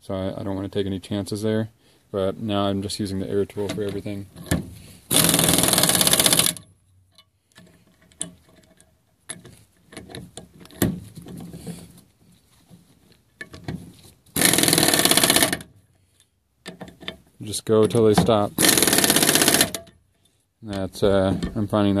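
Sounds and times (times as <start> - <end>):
air impact wrench hammering: 5.1 - 6.7, 14.4 - 15.7, 18.6 - 20.0.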